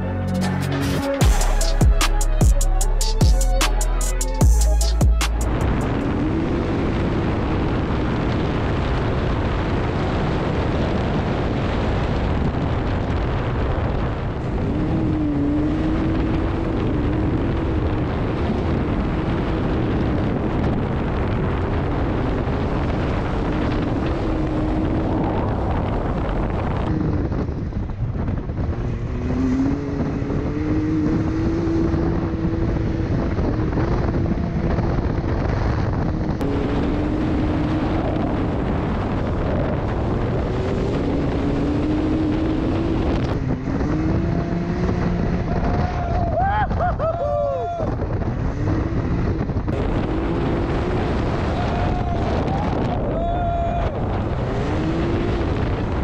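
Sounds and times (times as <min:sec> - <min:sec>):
wind noise on microphone: 0:00.0 - 0:56.0
dirt bike engine revving: 0:36.0 - 0:45.7, 0:48.4 - 0:52.0, 0:54.3 - 0:56.0.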